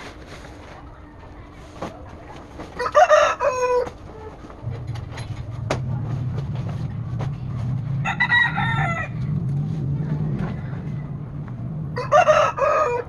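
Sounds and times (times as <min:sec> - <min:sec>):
rooster crowing: 0:02.8 - 0:03.9, 0:08.0 - 0:09.3, 0:12.0 - 0:13.0
low steady drone: 0:04.6 - 0:13.0.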